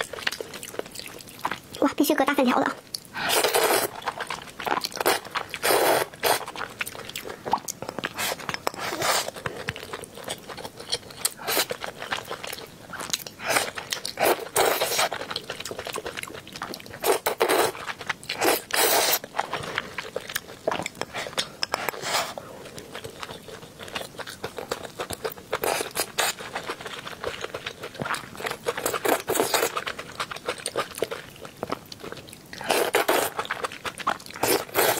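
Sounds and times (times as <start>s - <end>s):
chewing and mouth smacks: 0.0s - 1.8s, 3.9s - 34.9s
slurping noodles: 3.2s - 4.0s, 5.0s - 6.5s, 8.1s - 9.4s, 18.4s - 19.2s, 34.4s - 34.9s.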